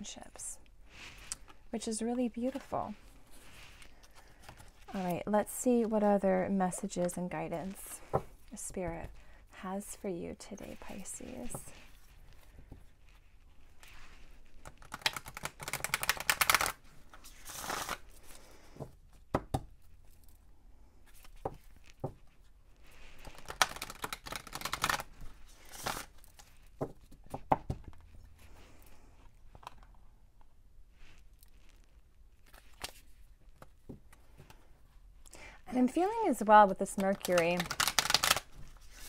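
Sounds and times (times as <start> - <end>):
cards being shuffled: 2.4 - 6.0, 10.6 - 20.3, 21.0 - 28.8, 31.1 - 34.6, 35.9 - 39.0.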